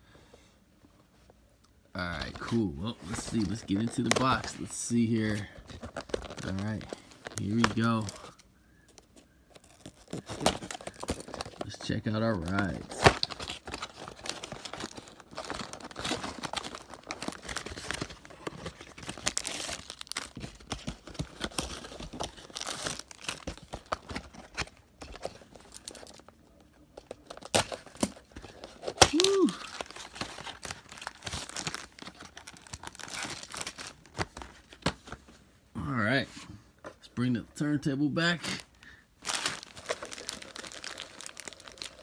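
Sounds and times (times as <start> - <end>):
plastic bags crinkling: 2.1 - 8.4, 9.0 - 34.9, 38.5 - 42.0
cardboard box rustling: 2.2 - 8.3.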